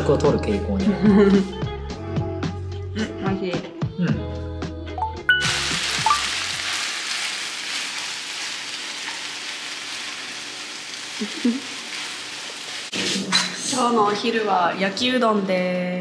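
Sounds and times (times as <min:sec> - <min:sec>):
noodles sizzling in a hot pan: 0:05.4 - 0:13.2.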